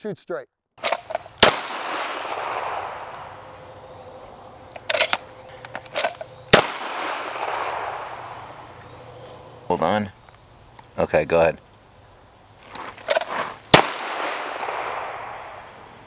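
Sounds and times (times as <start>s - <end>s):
sharp cracks and clanks: 0.8s - 3.4s, 4.7s - 8.4s
pistol shots with echo: 1.4s - 4.1s, 6.5s - 8.7s, 13.7s - 15.8s.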